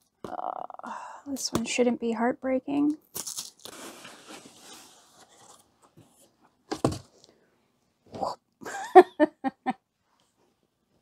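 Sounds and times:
woman wordless vocal sounds: 0.3s - 1.2s
cardboard box rustling: 3.7s - 7.1s.

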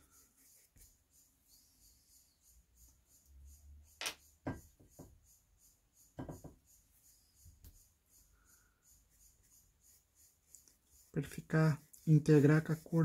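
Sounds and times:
soft taps and knocks of tools: 4.0s - 5.2s, 6.2s - 6.7s.

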